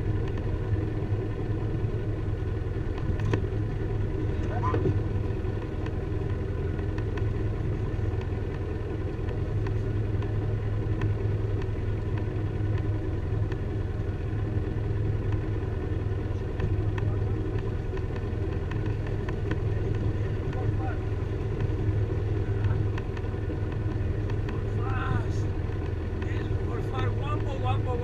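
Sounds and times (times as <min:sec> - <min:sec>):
motorboat engine running: 0:00.0 - 0:28.0
faint ticks: 0:05.5 - 0:13.7, 0:15.2 - 0:15.5, 0:16.4 - 0:20.7, 0:21.5 - 0:24.7.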